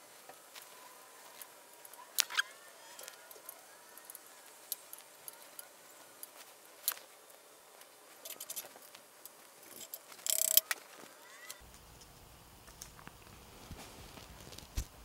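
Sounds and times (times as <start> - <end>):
metal tools clicking and clinking: 8.2 - 8.7, 9.6 - 10.8
metallic clatter with ring: 9.7 - 10.7.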